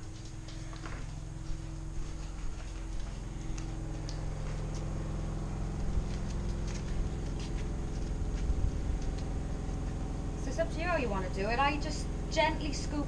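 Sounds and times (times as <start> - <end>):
flip-flop footsteps on tile: 0.0 - 4.9
low mechanical hum: 0.0 - 13.0.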